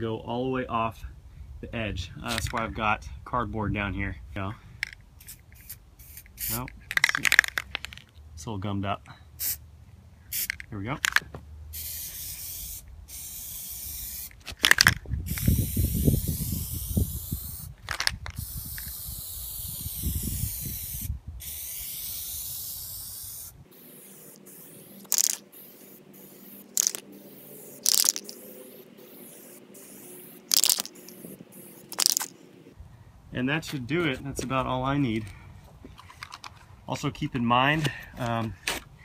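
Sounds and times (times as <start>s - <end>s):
aerosol can spraying: 11.8s - 14.4s, 15.3s - 17.7s, 18.3s - 32.4s.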